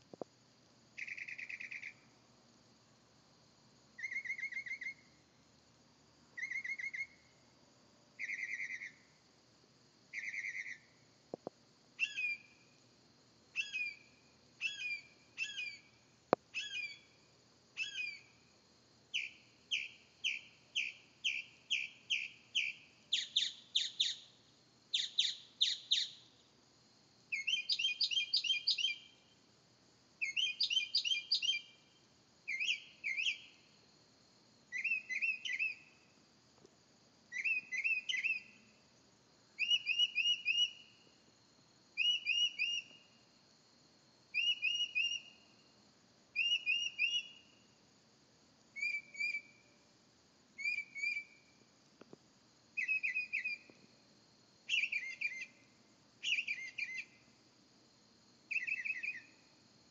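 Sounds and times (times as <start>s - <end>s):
mockingbird singing: 46.4s - 47.3s, 54.7s - 55.5s.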